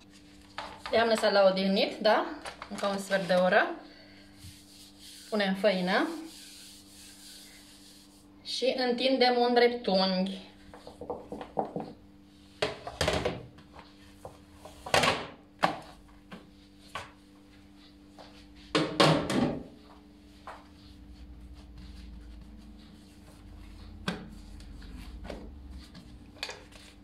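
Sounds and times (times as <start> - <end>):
kitchen knocks and rustles: 10.8 - 12.0, 12.6 - 17.2, 18.7 - 19.8
steady low hum: 19.6 - 27.0.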